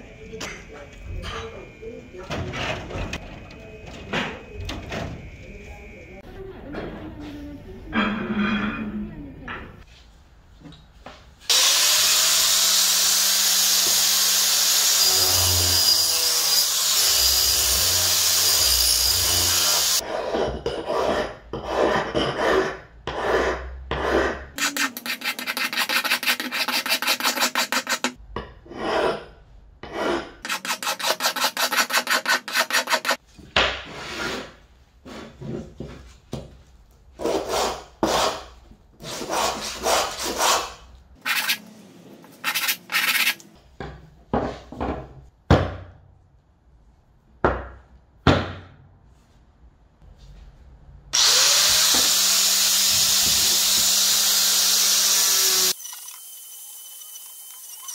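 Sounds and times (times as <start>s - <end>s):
file rasping on metal: 19.0s - 29.2s, 29.8s - 33.2s, 39.0s - 41.6s, 42.4s - 43.4s
metal rubbed on sandpaper: 24.6s - 28.2s, 30.5s - 33.2s, 41.2s - 41.6s, 42.4s - 43.4s.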